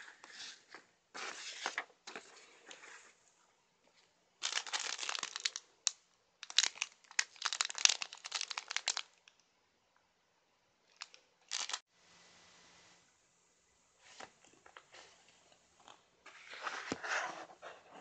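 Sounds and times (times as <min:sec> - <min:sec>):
plastic bag crinkling: 0:04.4 - 0:05.7, 0:06.4 - 0:09.3, 0:10.9 - 0:11.8.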